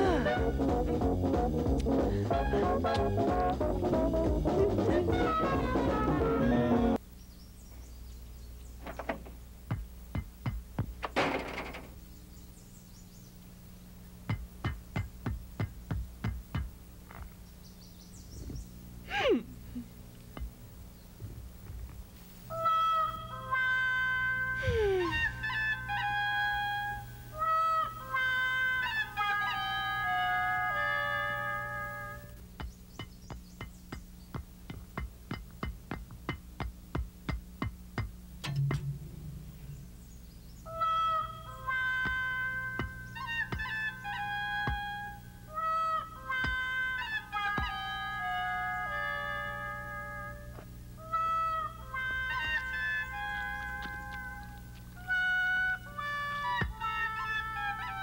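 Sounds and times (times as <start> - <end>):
steady electrical hum: 0.0 - 58.0
iron gate knocking and clanking: 10.2 - 12.0, 38.4 - 39.7
high heels on concrete steps: 14.3 - 16.7, 53.6 - 54.9.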